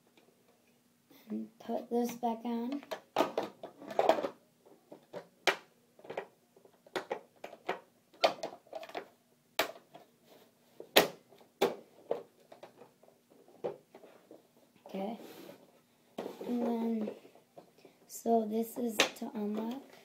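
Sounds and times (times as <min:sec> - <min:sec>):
plastic clicks and knocks: 0:02.7 - 0:10.0.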